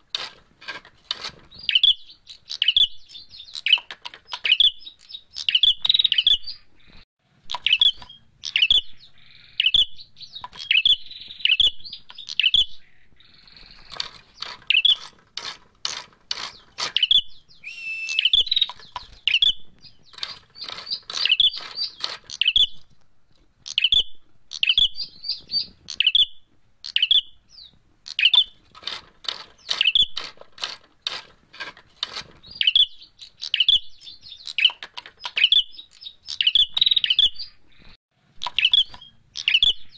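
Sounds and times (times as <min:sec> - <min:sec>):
bird sharp chirps: 0:01.6 - 0:15.1, 0:16.5 - 0:22.9, 0:23.7 - 0:28.6, 0:32.4 - 0:39.9.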